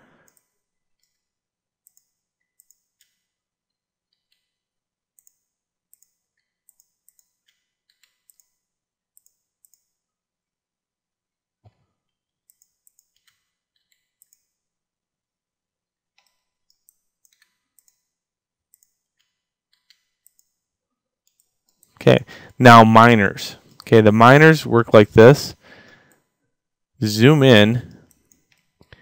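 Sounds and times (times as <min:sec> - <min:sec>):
mouse and keyboard clicks: 0:05.2 - 0:08.6, 0:16.2 - 0:18.1.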